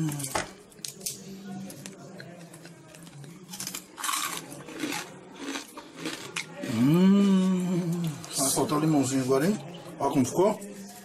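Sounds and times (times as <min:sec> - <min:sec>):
pork crackling crunching: 0:02.5 - 0:06.5
person humming: 0:06.7 - 0:08.2.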